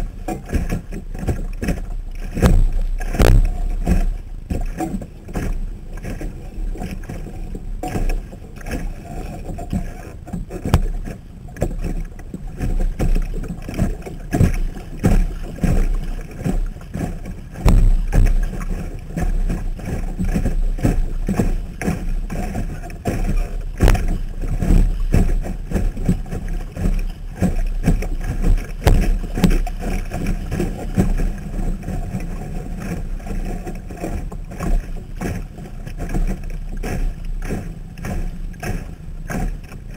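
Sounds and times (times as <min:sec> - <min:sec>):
steady low rumble: 0:00.0 - 0:39.9
water slapping against boat hull: 0:00.0 - 0:39.9.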